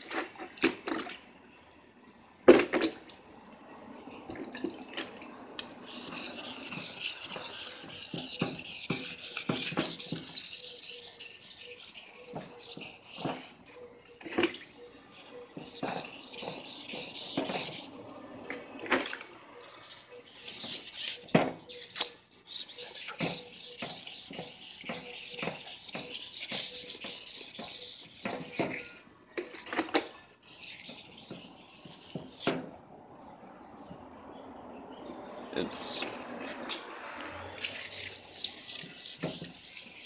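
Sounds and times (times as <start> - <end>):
sandpaper rubbing on plastic: 5.7 - 13.7, 15.1 - 18.0, 19.6 - 29.0, 30.4 - 32.6, 37.5 - 40.0.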